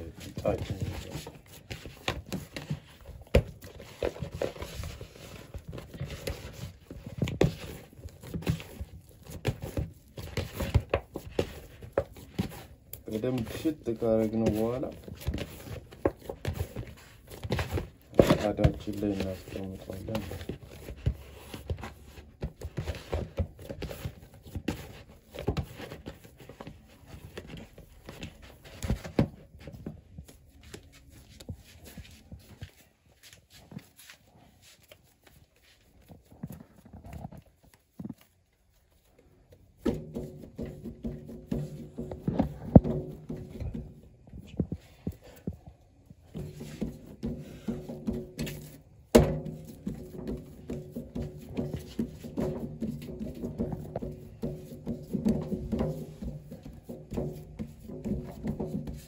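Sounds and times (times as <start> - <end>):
hand kneading dough in a bowl: 0.0 - 59.0
dough thumping in plastic bowl: 46.2 - 59.0.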